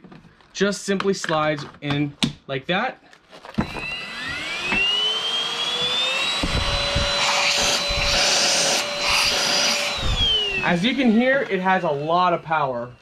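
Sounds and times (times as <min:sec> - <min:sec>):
stick vacuum motor whining: 0:03.5 - 0:13.0.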